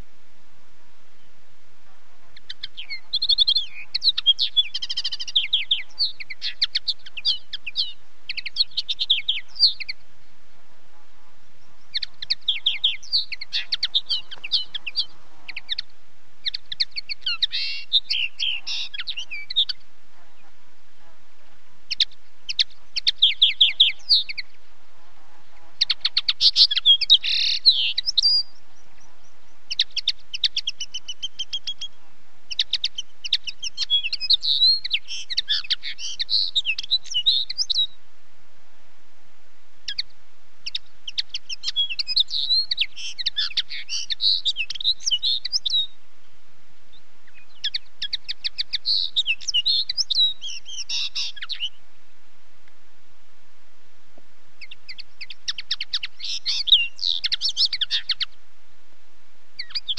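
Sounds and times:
linnet twittering song: 2.3 - 10.1, 11.5 - 20.6, 21.8 - 24.7, 25.5 - 38.0, 39.8 - 46.0, 46.9 - 51.8, 54.6 - 58.4, 59.6 - 59.9.

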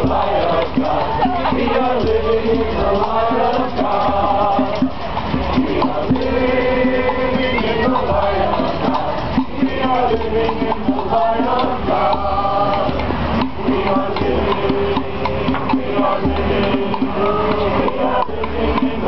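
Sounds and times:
group of marchers singing: 0.0 - 19.0
percussion: 0.0 - 19.0.

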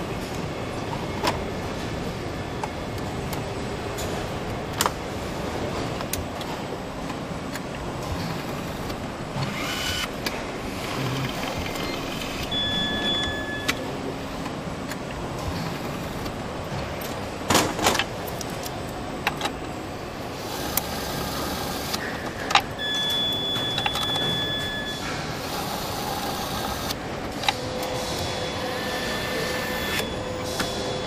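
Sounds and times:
steady mechanical background noise: 0.0 - 31.0.

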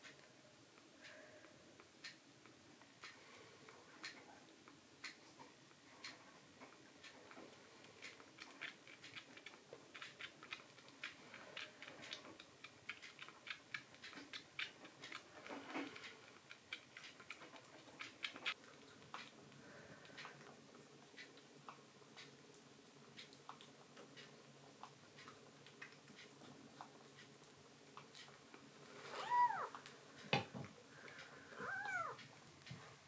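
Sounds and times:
kitten suckling wet clicks: 4.0 - 28.7.

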